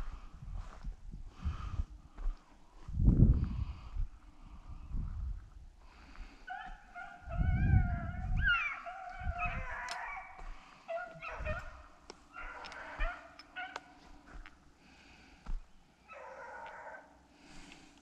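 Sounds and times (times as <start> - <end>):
hounds baying: 6.4 - 14.5, 16.0 - 17.2.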